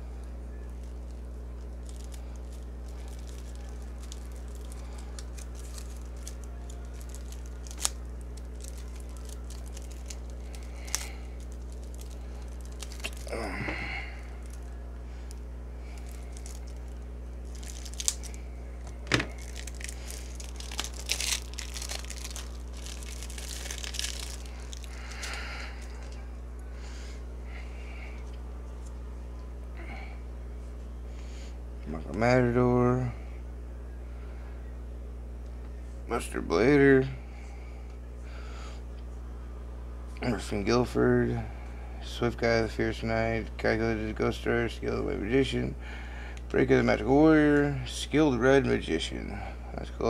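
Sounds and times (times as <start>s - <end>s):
steady low hum: 0.0s - 50.0s
packaging crinkling: 0.6s - 26.2s
packaging tearing: 1.7s - 14.7s, 15.9s - 26.2s.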